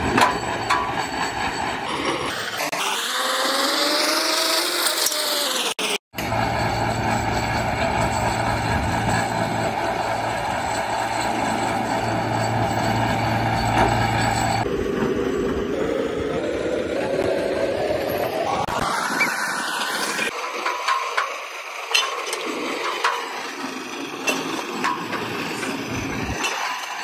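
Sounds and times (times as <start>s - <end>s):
machinery engine running: 5.9s - 26.4s.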